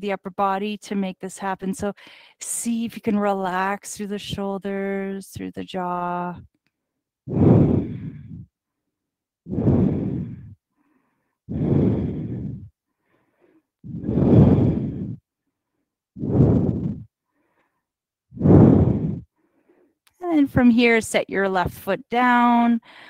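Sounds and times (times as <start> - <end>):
woman breathing deeply: 7.3 - 8.6, 9.5 - 15.3, 16.2 - 20.0.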